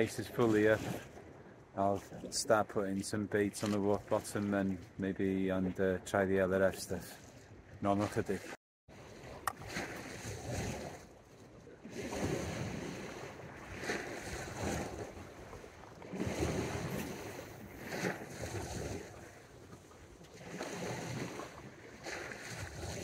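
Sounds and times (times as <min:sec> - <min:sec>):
waves washing against rocks: 0:11.9 - 0:19.5.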